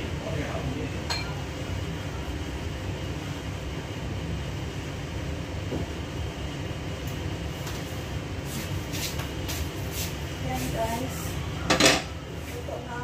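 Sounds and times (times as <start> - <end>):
range hood fan humming: 0.0 - 13.0
dishware clinking: 1.1 - 1.4.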